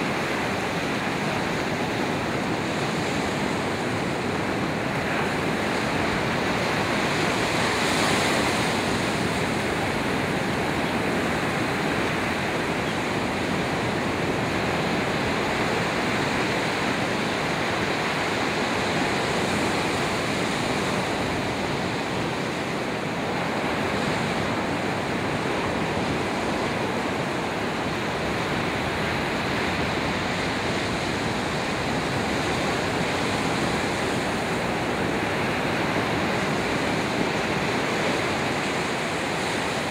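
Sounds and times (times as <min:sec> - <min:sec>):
ocean surf breaking: 0:00.0 - 0:39.9.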